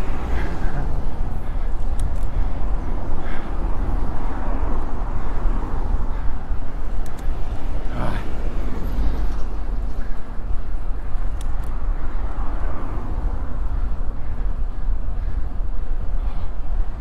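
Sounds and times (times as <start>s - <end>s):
road noise: 0.0s - 17.0s
wind rushing over microphone: 0.0s - 17.0s.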